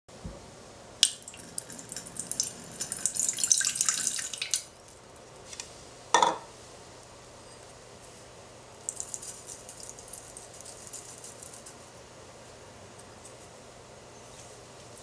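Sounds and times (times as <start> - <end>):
water pouring into a saucepan: 1.1 - 4.8.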